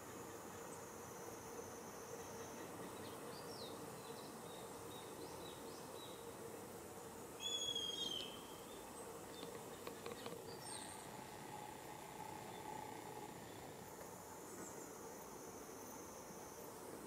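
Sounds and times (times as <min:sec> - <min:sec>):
faint ticks: 0:09.3 - 0:10.4.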